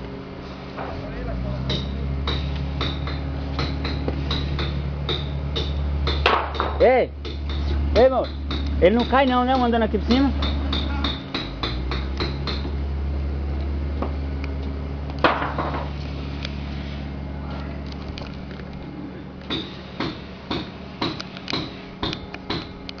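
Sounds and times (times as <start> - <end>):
low machine hum: 0.0 - 23.0.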